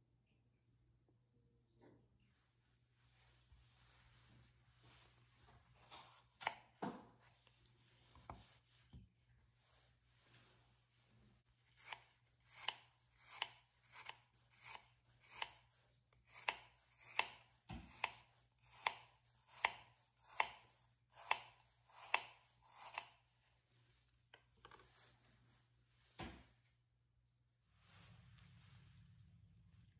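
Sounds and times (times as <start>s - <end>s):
knife slicing apple on cutting board: 5.8s - 7.5s, 11.6s - 23.3s.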